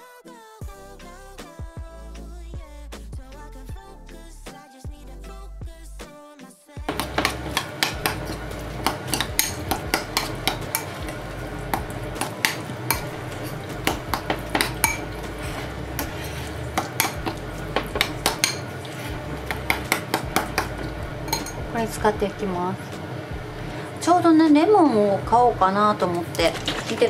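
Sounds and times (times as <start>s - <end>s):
spoon scraping glass bowl: 6.9s - 21.6s.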